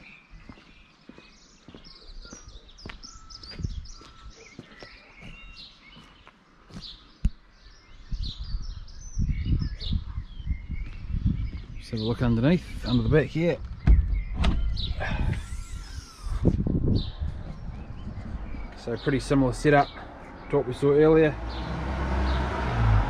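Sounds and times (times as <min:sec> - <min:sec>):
small birds chirping: 0:00.0 - 0:23.0
low microphone rumble: 0:08.0 - 0:11.8, 0:12.7 - 0:20.5.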